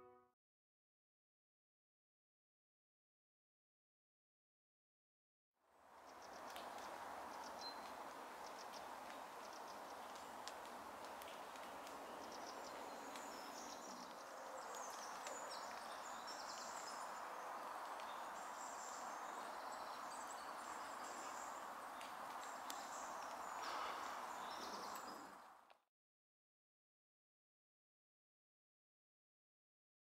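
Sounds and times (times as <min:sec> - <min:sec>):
small birds chirping: 0:06.0 - 0:25.6.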